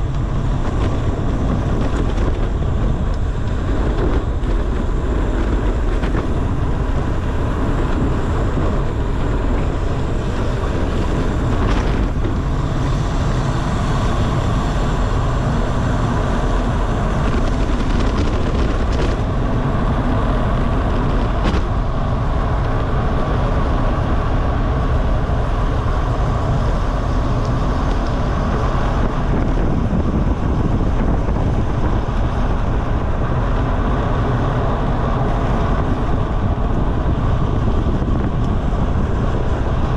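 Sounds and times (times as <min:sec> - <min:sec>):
tyre and road noise: 0:00.0 - 0:39.9
wind rushing over microphone: 0:00.0 - 0:39.9.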